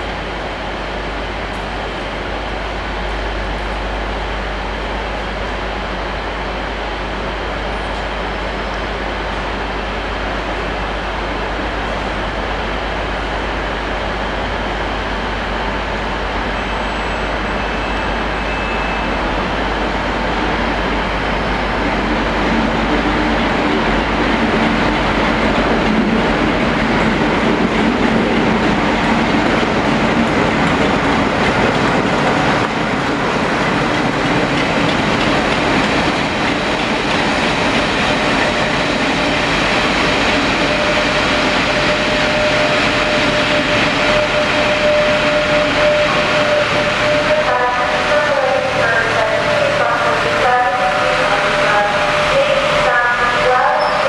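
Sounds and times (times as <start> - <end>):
diesel locomotive engine: 0.0 - 54.0
train wheels on rails: 6.6 - 54.0
high squeal: 16.6 - 19.2, 53.7 - 54.0.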